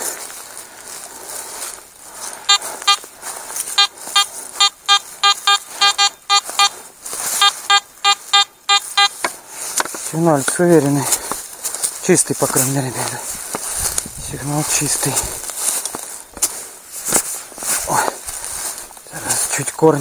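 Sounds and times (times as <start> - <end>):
metal detector beeping: 2.4 - 9.3.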